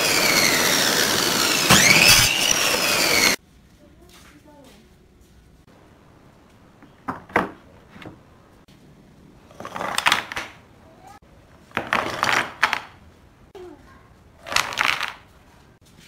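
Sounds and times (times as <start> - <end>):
wooden blocks clattering onto board: 14.5 - 15.2.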